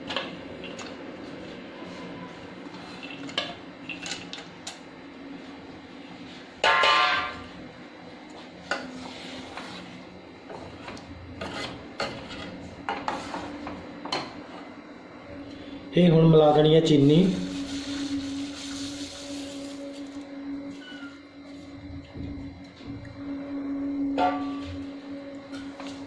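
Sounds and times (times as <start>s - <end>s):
ringing metallic clang: 24.1s - 24.8s.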